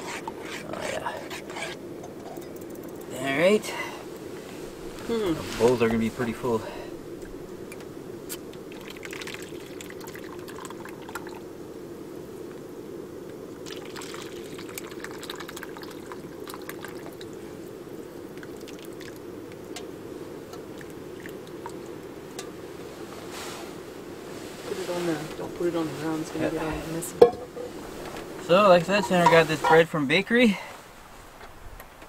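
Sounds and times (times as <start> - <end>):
steady low rumble: 1.8 - 8.8
soup pouring and splashing: 8.3 - 11.4, 13.6 - 19.9, 20.5 - 22.5.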